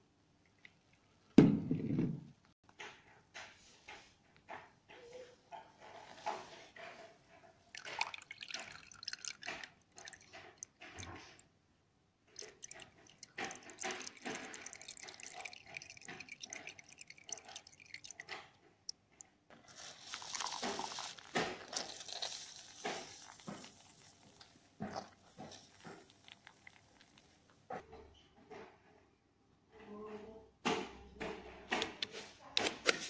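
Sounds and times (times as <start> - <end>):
juice trickling into a jug: 7.7 - 11.4, 12.3 - 27.7.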